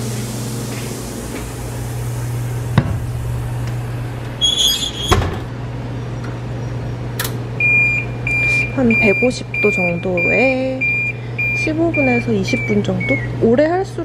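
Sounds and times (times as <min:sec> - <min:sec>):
steady low hum: 0:00.0 - 0:14.0
oven door knock: 0:02.8 - 0:03.1
oven door thudding shut: 0:02.8 - 0:03.4, 0:04.5 - 0:05.5.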